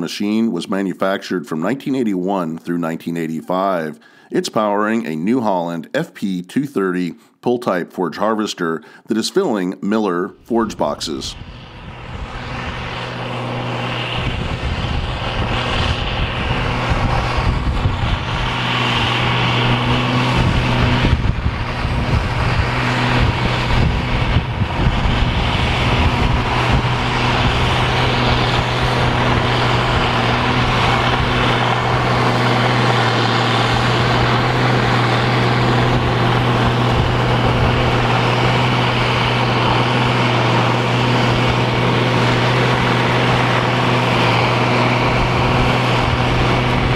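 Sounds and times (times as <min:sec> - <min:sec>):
diesel tractor engine drone: 0:10.4 - 0:46.9
forage harvester whooshing: 0:10.4 - 0:46.9.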